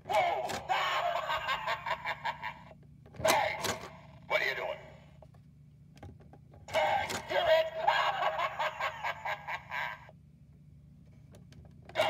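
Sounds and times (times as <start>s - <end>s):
spooky recorded voice effect: 0.0s - 2.5s, 3.2s - 5.1s, 6.7s - 8.4s.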